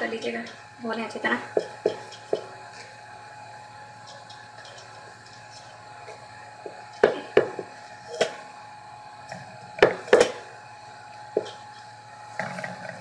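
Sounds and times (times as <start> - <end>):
bowl and pot knocking: 1.6 - 2.5.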